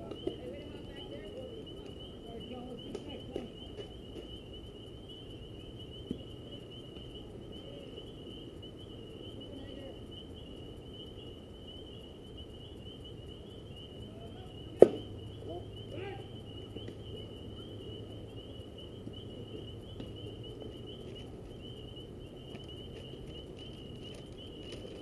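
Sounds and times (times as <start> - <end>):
night insects chirring: 0.0 - 25.0
baseball bat crack: 14.8 - 15.1.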